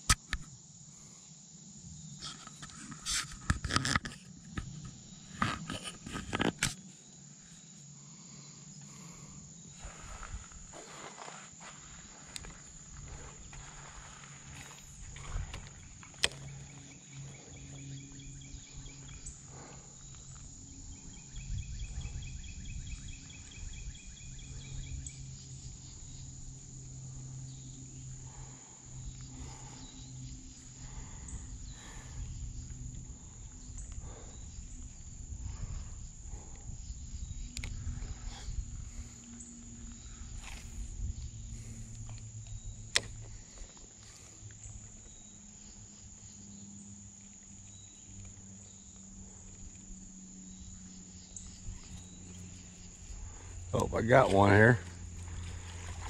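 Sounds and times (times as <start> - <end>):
sharp click: 0.0 - 0.5
insects trilling: 0.0 - 56.0
low rumbling noise: 27.0 - 44.4.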